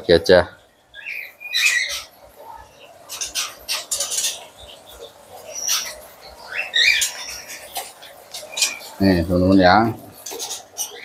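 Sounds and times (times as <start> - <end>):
birds chirping: 0.0 - 11.0.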